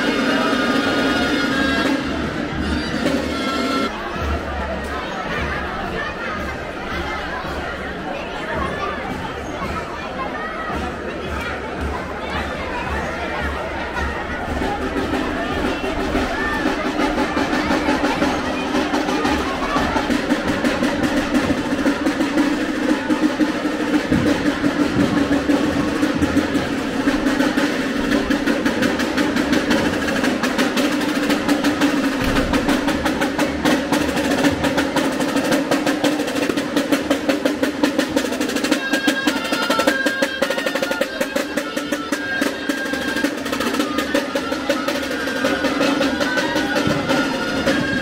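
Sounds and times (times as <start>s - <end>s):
high melody: 0.0s - 4.0s
snare drum rolls: 0.0s - 48.0s.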